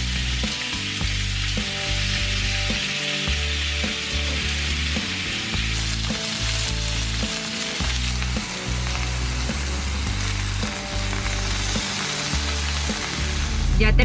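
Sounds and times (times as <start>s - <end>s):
background music with bass line: 0.0s - 14.0s
steaks sizzling in grill pan: 0.0s - 14.0s.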